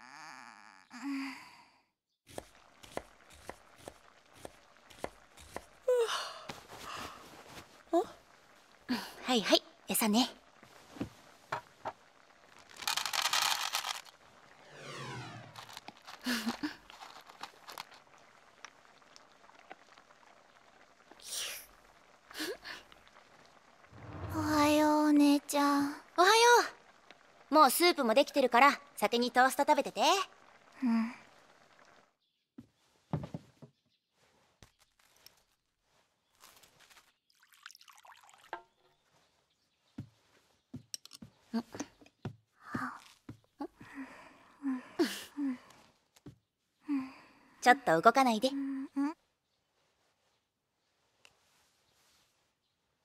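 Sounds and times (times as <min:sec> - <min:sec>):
dry kibble crunching: 0:12.3 - 0:14.2, 0:15.5 - 0:20.8
soup pouring into bowl: 0:37.3 - 0:38.7.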